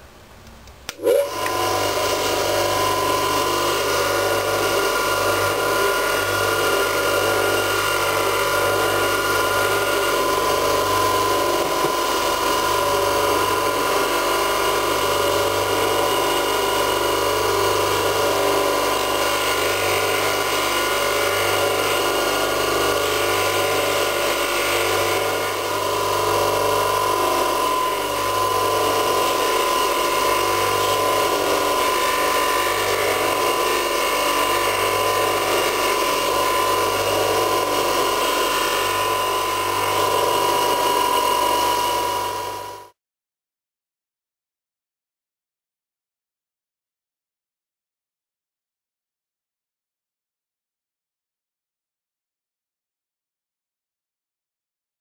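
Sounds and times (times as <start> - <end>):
polishing motor humming and whining: 1.0 - 43.0.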